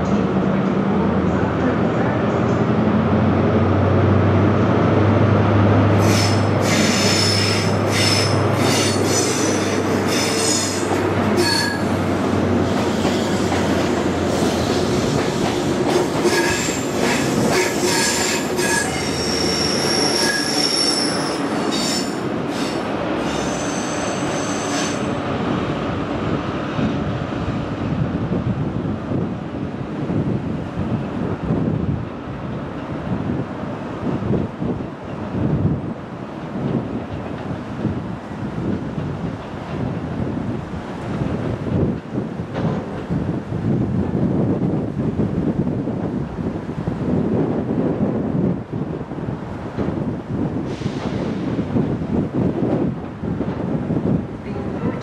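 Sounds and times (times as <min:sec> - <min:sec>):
train engine hum: 0:00.0 - 0:55.0
train wheels squealing: 0:06.0 - 0:11.9, 0:16.3 - 0:25.2.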